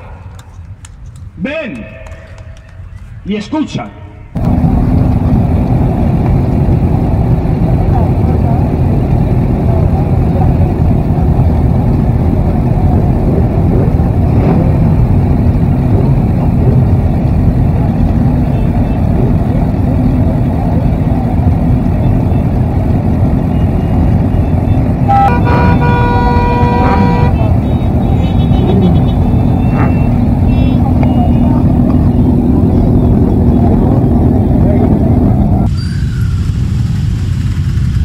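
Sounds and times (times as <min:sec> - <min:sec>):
motorcycle engines revving: 0:04.1 - 0:38.0
horn blast: 0:24.9 - 0:30.7.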